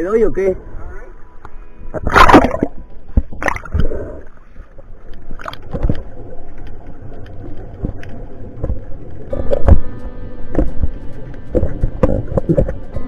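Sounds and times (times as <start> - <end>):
muffled underwater sloshing: 0.7 - 13.0
loud water splash: 2.0 - 4.2
underwater knocks: 10.5 - 12.8.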